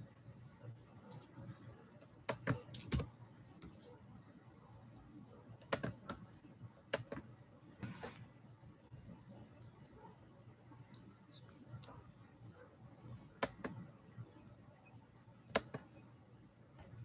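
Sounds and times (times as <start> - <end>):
computer key clicks: 2.3 - 3.1
brushing rustle: 7.8 - 8.3.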